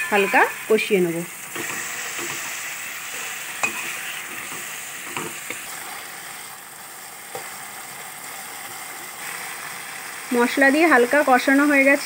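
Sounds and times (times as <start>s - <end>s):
metal spatula scraping pan: 0.0s - 5.9s
food sizzling in hot oil: 0.0s - 12.0s.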